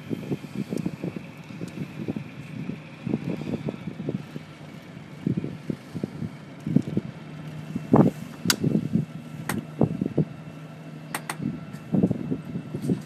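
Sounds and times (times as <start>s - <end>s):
wind buffeting microphone: 0.0s - 10.6s, 11.2s - 13.0s
boat engine humming: 0.0s - 13.0s
sharp clicks: 11.1s - 11.4s.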